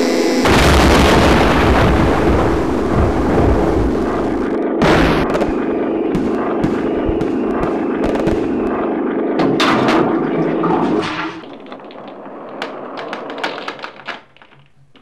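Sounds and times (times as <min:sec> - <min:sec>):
ground rumbling and cracking: 0:00.5 - 0:15.0.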